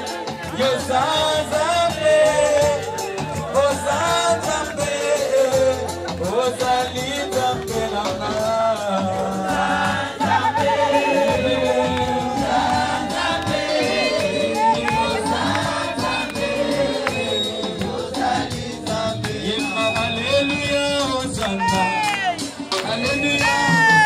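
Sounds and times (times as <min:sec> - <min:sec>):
music: 0:00.0 - 0:24.0
women singing together: 0:00.5 - 0:20.4
hands clapping: 0:10.3 - 0:24.0.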